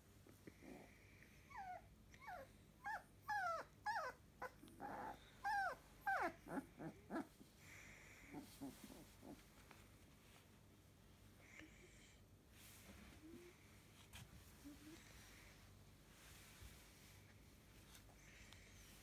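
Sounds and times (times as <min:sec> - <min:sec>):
puppy whimpering: 0:01.5 - 0:07.4.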